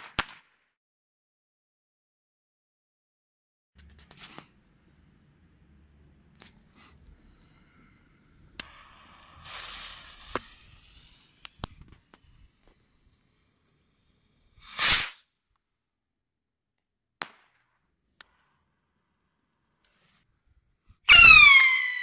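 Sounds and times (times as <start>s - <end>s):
fuse hissing: 6.6s - 15.1s
rocket taking off: 8.2s - 15.2s.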